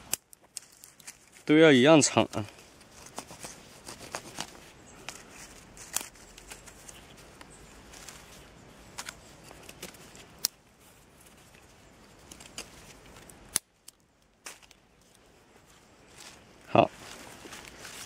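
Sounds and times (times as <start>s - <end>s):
knife snapping thin sticks: 0.0s - 1.2s, 8.9s - 10.6s, 12.2s - 14.8s.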